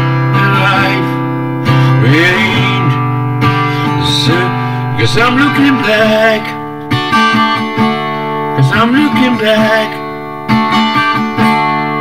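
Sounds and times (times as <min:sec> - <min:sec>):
acoustic guitar chords: 0:00.0 - 0:12.0
person singing: 0:00.4 - 0:07.3.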